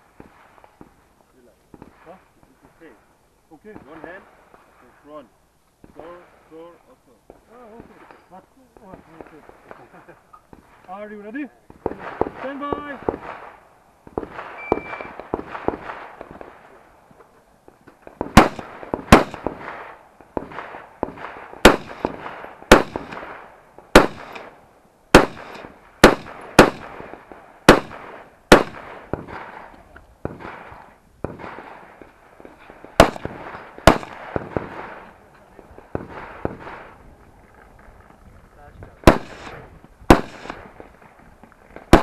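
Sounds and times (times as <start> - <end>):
rifle shots: 11.7 - 16.8, 18.0 - 35.2, 35.8 - 37.0, 39.0 - 41.1, 41.8 - 42.0
shot timer beep: 14.6 - 15.1
faint gunshot cracks: 24.0 - 24.5, 33.0 - 35.1, 39.0 - 40.7.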